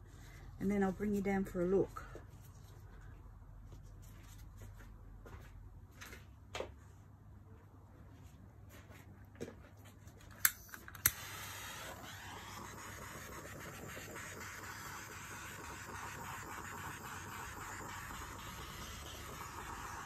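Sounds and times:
torch igniter clicks: 10.4s - 20.0s
torch flame hissing: 10.5s - 20.0s.

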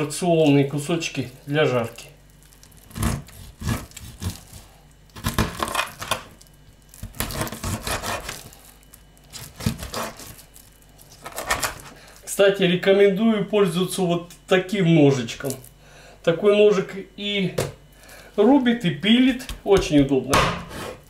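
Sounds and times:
knife chopping fish: 2.9s - 6.3s, 7.0s - 8.5s, 9.4s - 10.4s.

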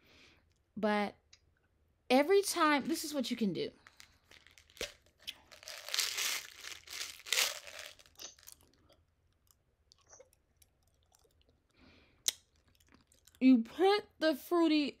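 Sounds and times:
gum chewing mouth noises: 7.5s - 13.4s.

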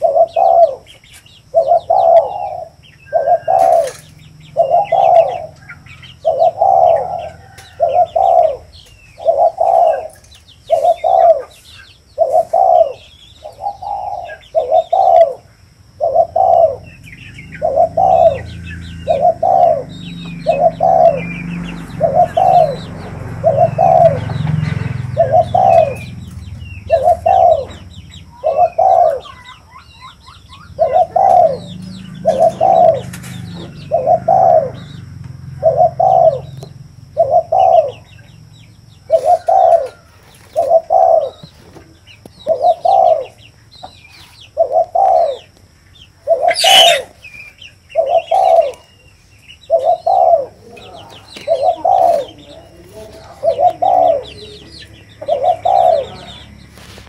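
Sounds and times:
dove cooing: 0.0s - 49.0s, 49.6s - 56.9s
small birds chirping: 0.0s - 57.0s.

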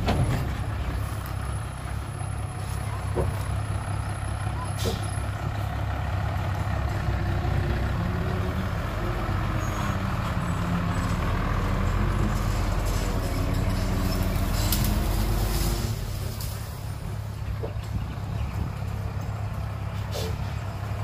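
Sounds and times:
diesel truck engine under load: 0.0s - 21.0s.

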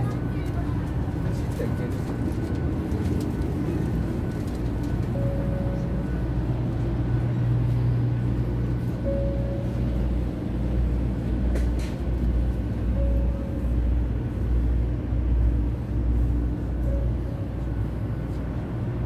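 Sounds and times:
train car hum and rumble: 0.0s - 19.0s
short beeps: 5.1s - 6.3s, 8.9s - 10.2s, 12.9s - 13.8s.

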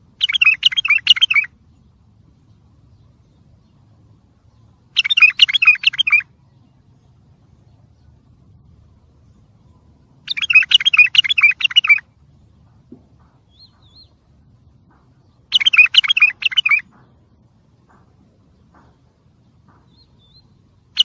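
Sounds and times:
bulbul warbling: 0.2s - 1.5s, 5.0s - 6.2s, 10.3s - 12.1s, 15.5s - 16.9s
faint high chirps: 0.2s - 12.2s, 15.2s - 17.0s.

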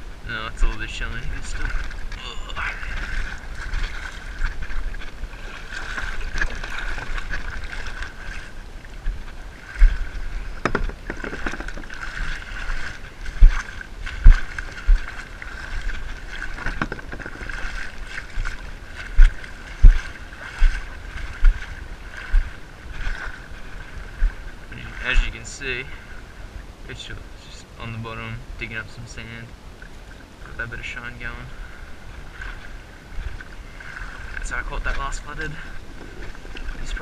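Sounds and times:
shallow water swishing: 0.0s - 37.0s
dull thumps on microphone: 10.6s - 12.0s, 16.6s - 17.5s.

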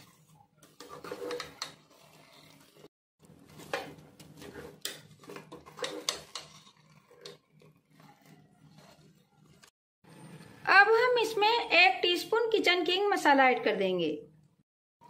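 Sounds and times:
plastic spatula scraping a pot: 0.0s - 9.8s.

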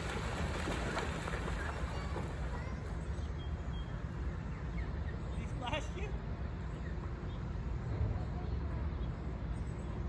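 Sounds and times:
geese splashing and flapping wings: 0.0s - 3.0s.

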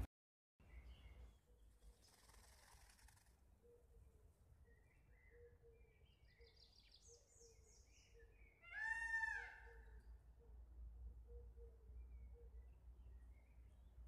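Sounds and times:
faint small bird chirps: 0.6s - 8.6s
peafowl nasal call: 8.6s - 9.9s.

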